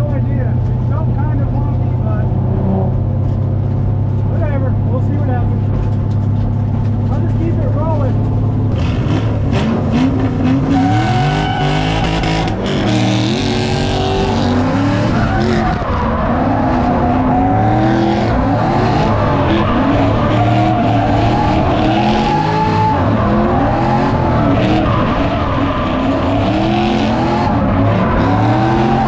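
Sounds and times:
car engine revving high: 0:08.6 - 0:29.0
tyres squealing: 0:13.7 - 0:29.0.

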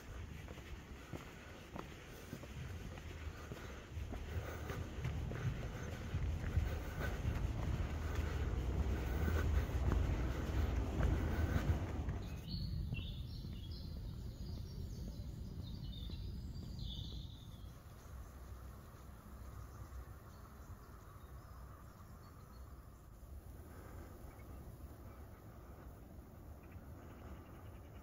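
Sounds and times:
loud low rushing rumble: 0:02.6 - 0:16.6
bird chirping: 0:03.2 - 0:23.2.

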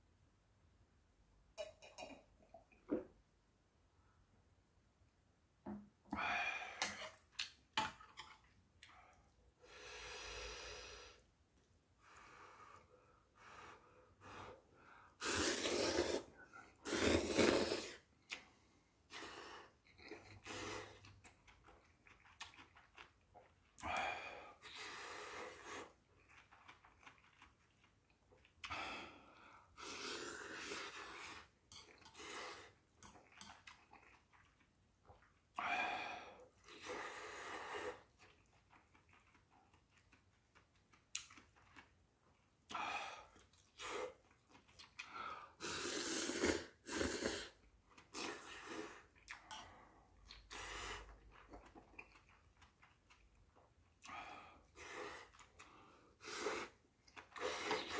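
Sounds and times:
breathing: 0:08.9 - 0:11.3, 0:12.0 - 0:15.2, 0:28.6 - 0:29.8, 0:45.0 - 0:45.6
noodles slurping: 0:15.2 - 0:18.1, 0:54.7 - 0:57.9
chewing: 0:19.8 - 0:23.9, 0:25.8 - 0:28.7, 0:31.2 - 0:35.5, 0:37.9 - 0:42.4, 0:43.2 - 0:45.1, 0:47.9 - 0:54.2.

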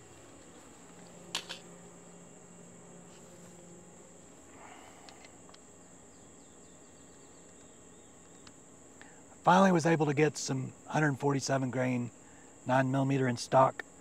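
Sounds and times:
faint ticks: 0:04.8 - 0:05.7, 0:07.4 - 0:09.2.

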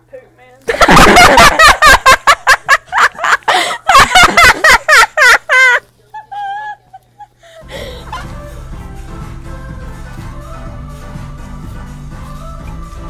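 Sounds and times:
girl cackling: 0:01.0 - 0:08.3
music: 0:07.6 - 0:13.0.

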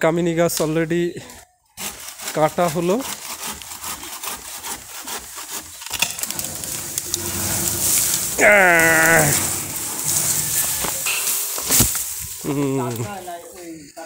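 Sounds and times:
leafy branches rustling: 0:05.9 - 0:13.8.

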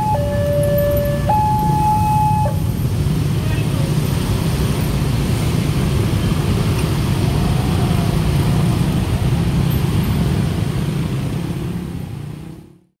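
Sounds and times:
motorcycle and scooter traffic: 0:00.0 - 0:12.9.

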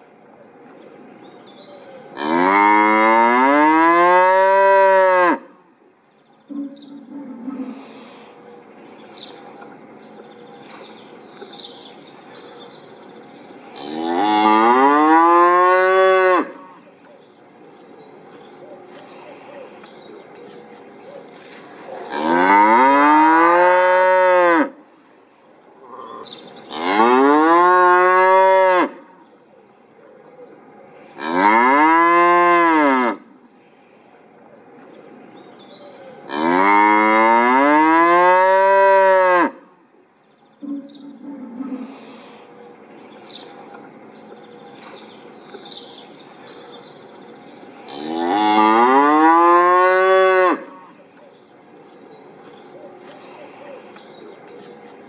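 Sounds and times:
cow mooing: 0:22.1 - 0:24.8, 0:31.2 - 0:33.2.

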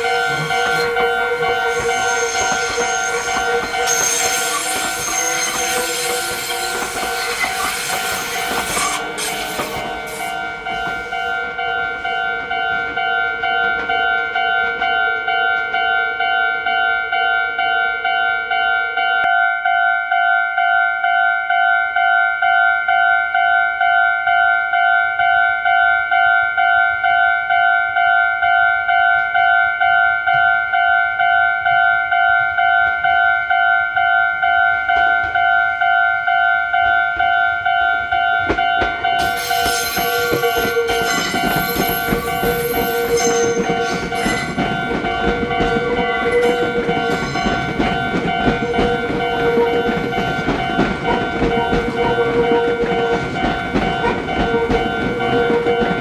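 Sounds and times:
train wheels squealing: 0:00.0 - 0:11.3, 0:39.2 - 0:44.9
electric train passing: 0:00.0 - 0:19.8, 0:30.7 - 0:56.0
level crossing warning bell: 0:00.0 - 0:56.0.

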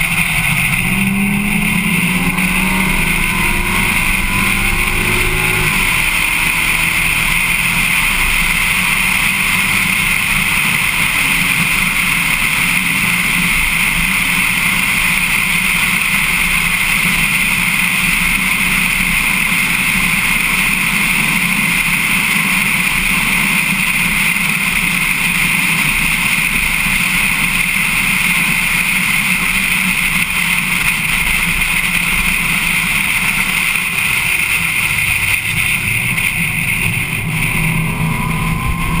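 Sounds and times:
rising tone: 0:00.0 - 0:10.5, 0:33.4 - 0:39.0
race car engine running: 0:00.0 - 0:39.0
wind and road noise: 0:00.0 - 0:39.0.

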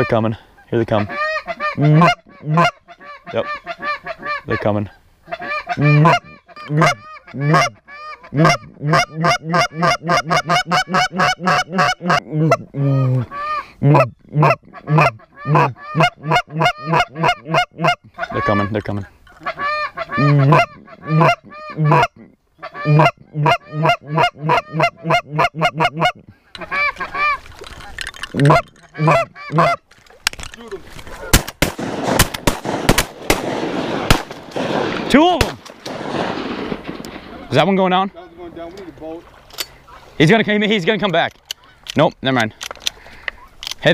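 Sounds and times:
goose honking and clucking: 0:00.0 - 0:29.9.

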